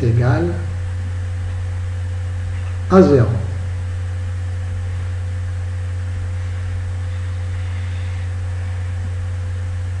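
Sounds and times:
low hum: 0:00.0 - 0:10.0
even hiss: 0:06.2 - 0:09.8.

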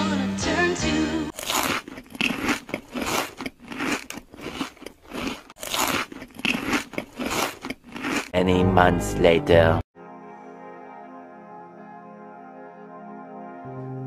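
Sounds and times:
crunching bites of fried chicken: 0:01.3 - 0:08.4.

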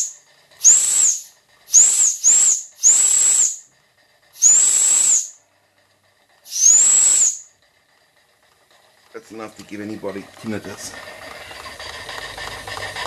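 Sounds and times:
toy steam whistle blasts: 0:00.0 - 0:03.7, 0:04.4 - 0:05.4, 0:06.5 - 0:07.6
steam hissing: 0:00.0 - 0:05.5, 0:06.2 - 0:07.6.

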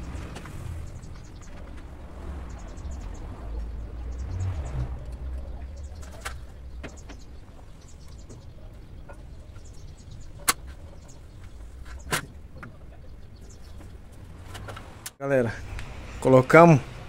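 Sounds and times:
low steady rumble: 0:00.0 - 0:16.2
sharp clicks and knocks: 0:08.0 - 0:12.9.

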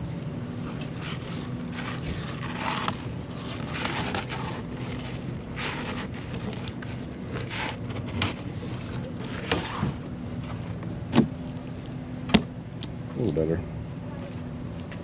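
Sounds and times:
steady low hum: 0:00.0 - 0:15.0
knife scraping fish skin: 0:00.6 - 0:10.0.

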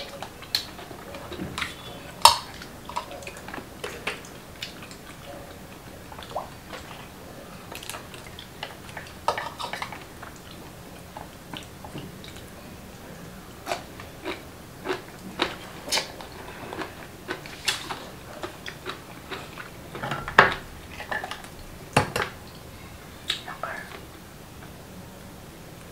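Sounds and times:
chewing: 0:00.0 - 0:12.6, 0:13.6 - 0:21.6.

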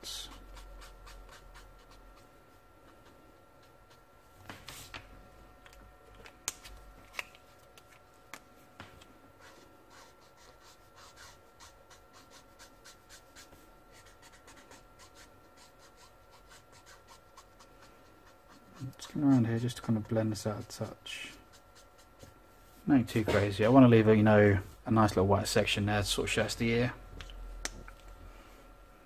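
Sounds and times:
marker tip scratching paper: 0:00.4 - 0:02.0, 0:09.4 - 0:19.0.

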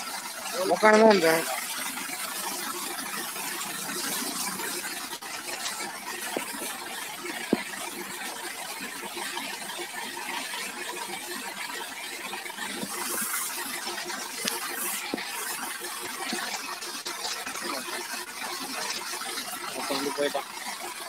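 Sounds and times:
water jet hissing and splashing on metal: 0:00.0 - 0:21.0.

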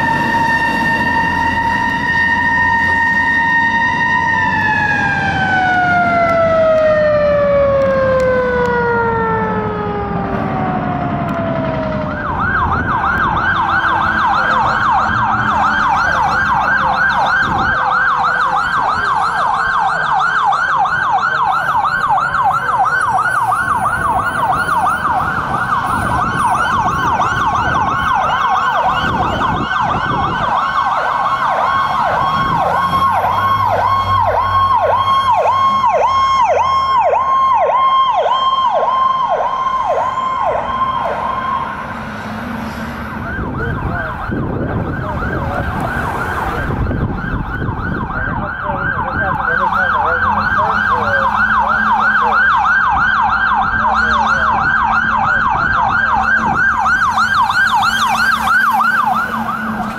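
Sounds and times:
electronic siren yelp: 0:00.0 - 0:42.0, 0:43.0 - 0:59.9
siren winding down: 0:00.0 - 0:59.9.

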